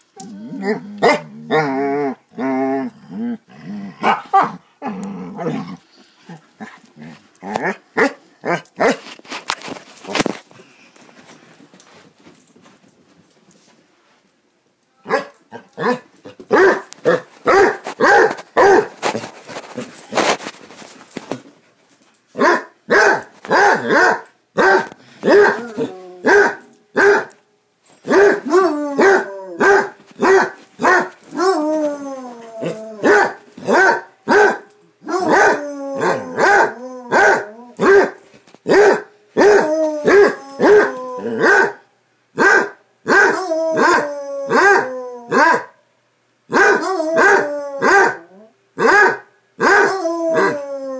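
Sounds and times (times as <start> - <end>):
dog baying barks: 0.6 - 1.8, 4.0 - 5.7, 15.0 - 19.0, 22.4 - 27.4, 28.0 - 31.7, 32.6 - 41.8, 42.4 - 45.8, 46.5 - 50.6
rustling scuffle: 8.4 - 14.4, 15.8 - 23.8, 24.6 - 41.2.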